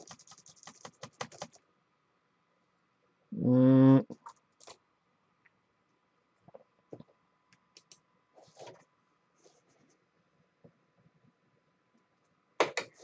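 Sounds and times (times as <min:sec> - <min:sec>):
keyboard and mouse clicks: 0:04.1 - 0:04.8, 0:07.0 - 0:08.0.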